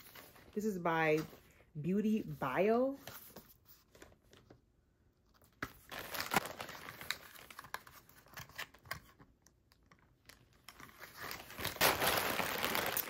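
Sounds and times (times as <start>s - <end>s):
packaging rustling and crinkling: 5.6s - 9.2s, 9.8s - 13.0s.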